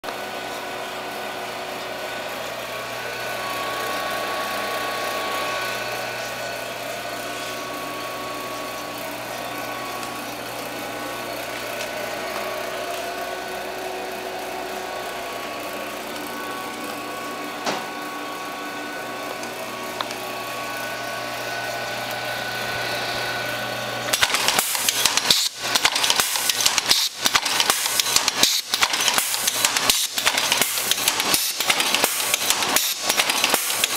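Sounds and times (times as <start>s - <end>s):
machine humming: 0.1s - 33.9s
loud mechanical clacks: 24.1s - 33.9s.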